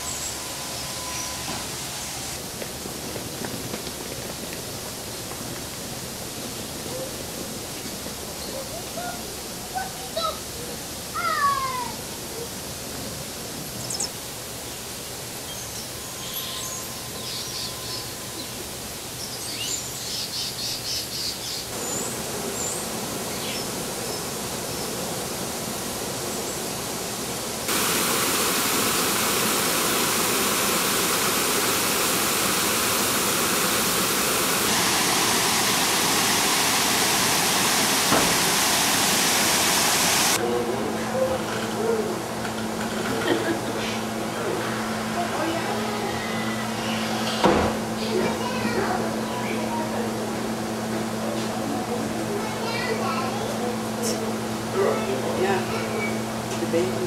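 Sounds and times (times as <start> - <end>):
bird trill: 0.0 - 1.5, 15.5 - 18.6
rushing water: 0.0 - 16.2, 21.6 - 40.4
background hiss: 0.0 - 40.4
small birds chirping: 13.8 - 25.1.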